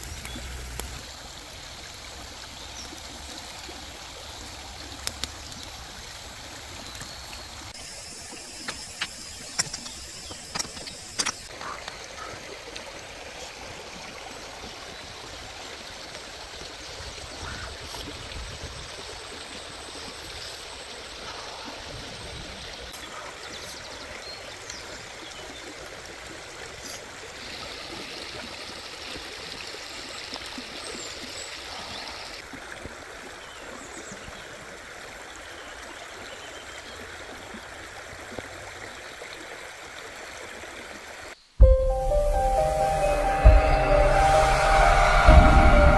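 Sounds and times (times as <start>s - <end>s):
loud music: 41.6s - 45.9s
steady rushing noise: 41.6s - 45.9s.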